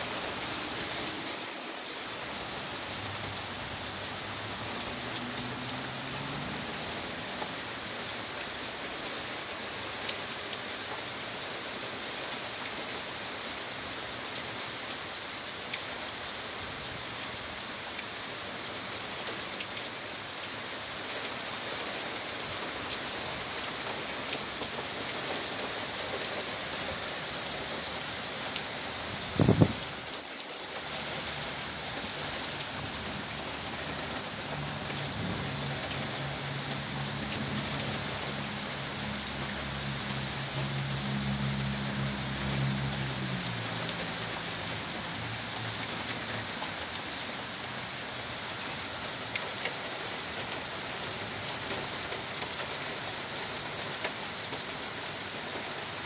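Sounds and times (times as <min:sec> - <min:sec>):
heavy rain hissing: 0:00.0 - 0:56.0.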